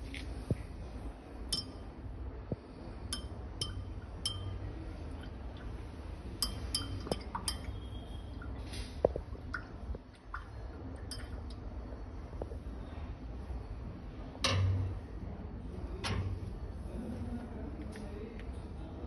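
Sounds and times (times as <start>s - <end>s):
glass rod clinking on beaker: 1.5s - 1.9s, 3.1s - 4.7s, 6.4s - 7.9s.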